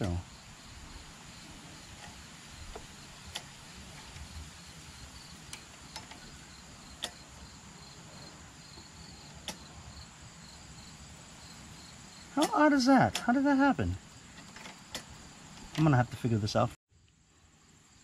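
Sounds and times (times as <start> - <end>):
insects chirping: 0.0 - 18.0.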